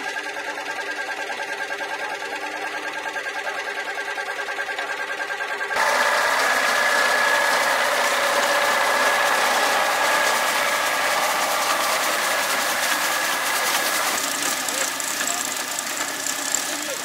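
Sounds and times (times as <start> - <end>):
tractor engine running: 0.0 - 17.0
reaper machinery clattering: 5.8 - 17.0.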